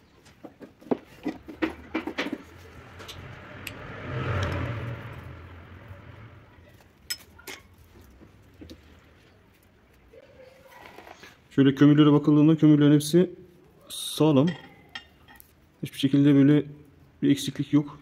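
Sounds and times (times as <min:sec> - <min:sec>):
rumbling noise: 0:01.4 - 0:07.1
metal tools clinking on bench: 0:07.0 - 0:07.8.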